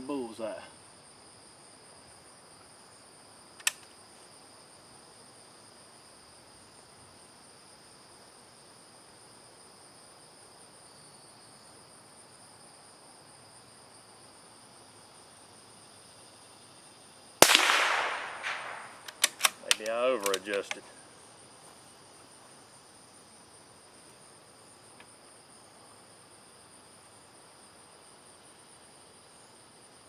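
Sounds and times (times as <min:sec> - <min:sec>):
insects chirring: 0:00.0 - 0:30.0
click: 0:03.6 - 0:03.9
rifle shot: 0:17.4 - 0:19.8.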